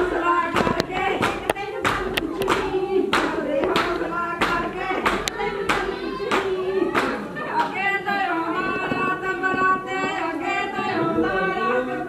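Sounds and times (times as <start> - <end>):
hands clapping in rhythm: 0.0 - 7.9
women singing together: 0.0 - 12.0.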